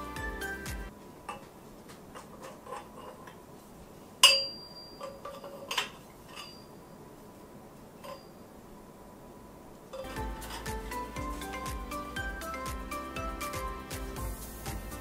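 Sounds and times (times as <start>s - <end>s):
metal tubes clanking: 10.0s - 11.7s.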